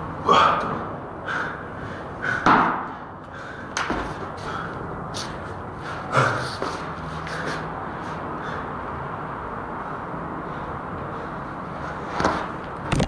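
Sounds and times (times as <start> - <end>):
sneakers on stone stairs: 3.8 - 4.5.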